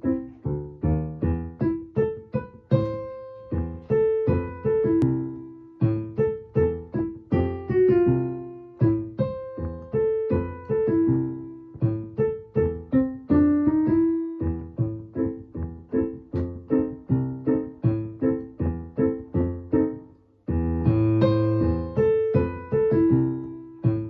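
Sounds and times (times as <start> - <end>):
solo piano piece: 0.0 - 24.0.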